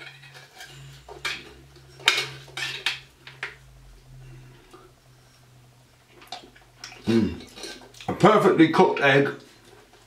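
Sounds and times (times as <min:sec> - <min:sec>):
cutlery scraping on a plate: 0:00.0 - 0:03.6, 0:06.9 - 0:08.1
faint low hum: 0:00.0 - 0:10.0.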